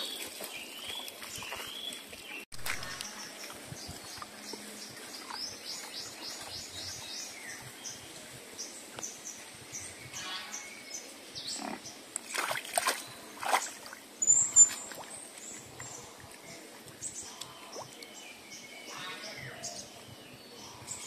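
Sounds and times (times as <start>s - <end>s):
small birds chirping: 0.0s - 21.0s
boar grunting and snorting: 11.5s - 12.0s.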